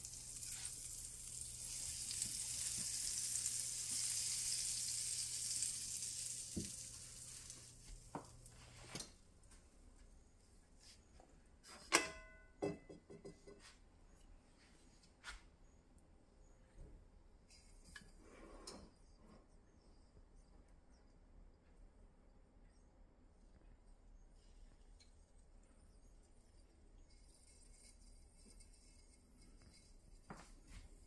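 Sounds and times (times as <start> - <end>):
butter sizzling in frying pan: 0.0 - 8.8.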